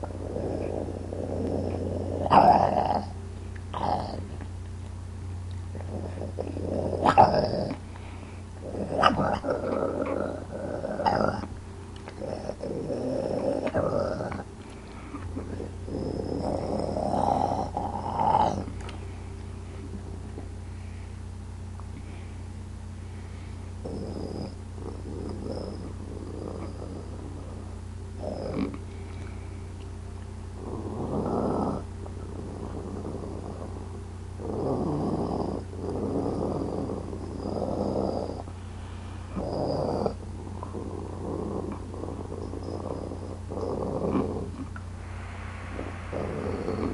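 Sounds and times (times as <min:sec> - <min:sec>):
person imitating wolf growl: 0:00.0 - 0:04.3, 0:05.8 - 0:07.8, 0:08.6 - 0:11.5, 0:12.2 - 0:14.5, 0:15.4 - 0:18.7, 0:39.4 - 0:44.8.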